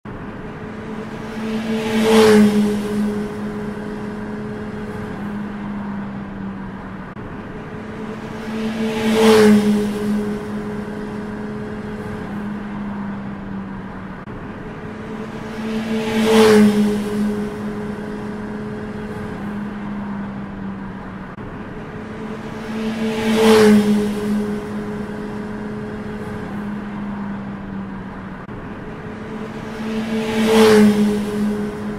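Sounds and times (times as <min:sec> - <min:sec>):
steady engine drone: 0:00.0 - 0:31.9
motorcycle passing fast: 0:00.1 - 0:31.9.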